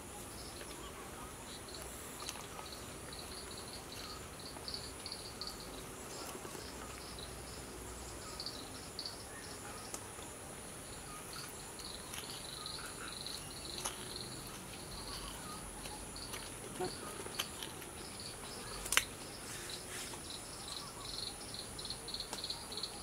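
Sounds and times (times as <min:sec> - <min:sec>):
insects buzzing: 0:00.0 - 0:23.0
rapid insect chirping: 0:00.0 - 0:23.0.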